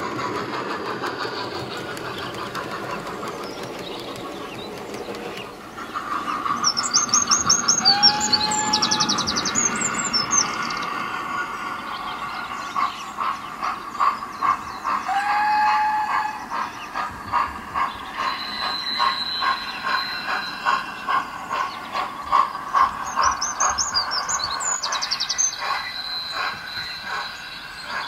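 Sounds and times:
birds chirping: 0.0s - 28.0s
steam train chugging: 0.0s - 28.0s
steam train whistle: 7.8s - 9.6s, 15.0s - 16.6s.

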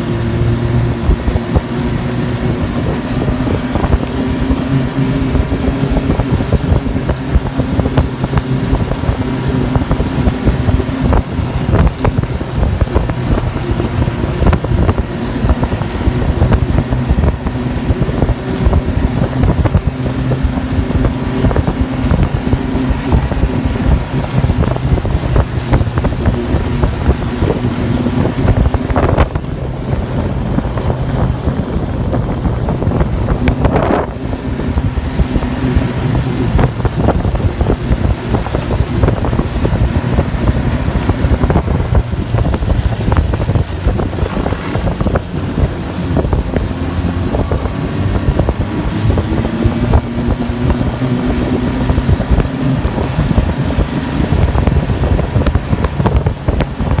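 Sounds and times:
snowmobile engine running: 0.0s - 57.0s
wind buffeting microphone: 0.0s - 57.0s.

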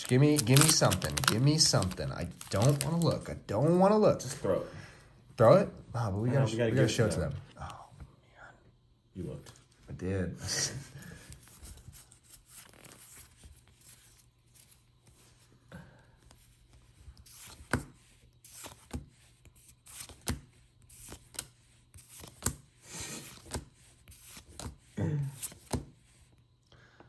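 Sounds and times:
cards rubbing: 0.0s - 3.2s, 11.3s - 15.2s, 16.3s - 26.3s.

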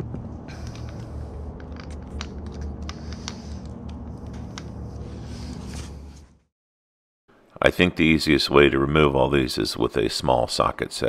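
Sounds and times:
low rumble: 0.0s - 6.5s.

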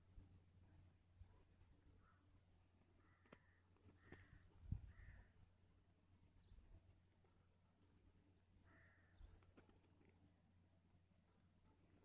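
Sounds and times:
low steady hum: 0.0s - 12.0s
distant bird call: 1.8s - 5.5s, 8.6s - 9.7s.

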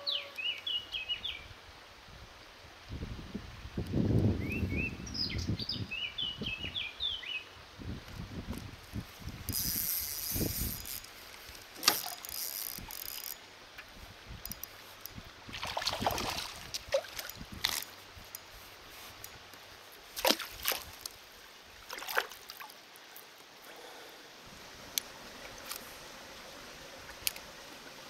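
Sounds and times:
bird chirping: 0.0s - 1.4s
fish splashing: 15.5s - 17.8s, 20.2s - 21.1s.

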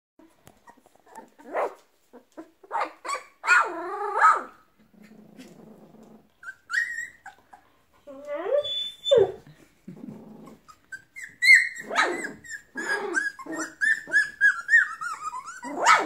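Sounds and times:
puppy growling: 0.6s - 2.7s, 3.6s - 16.0s
puppies yipping and barking: 0.6s - 4.6s, 6.4s - 9.4s, 10.4s - 16.0s
puppy yelping: 0.6s - 4.6s, 6.4s - 9.4s, 10.4s - 16.0s.

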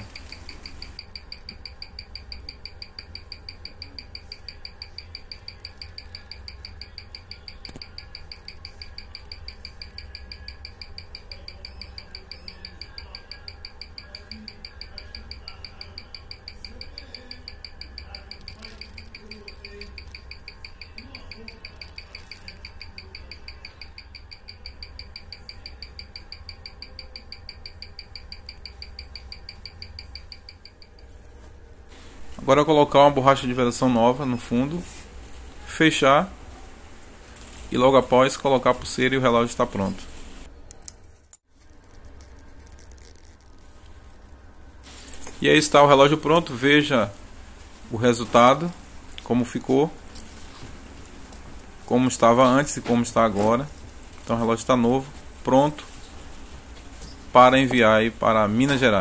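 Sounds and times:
watch ticking: 0.0s - 31.1s.

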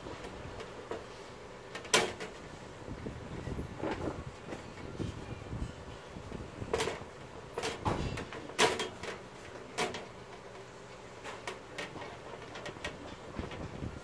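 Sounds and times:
clicks and light knocks on metal: 6.7s - 13.7s.

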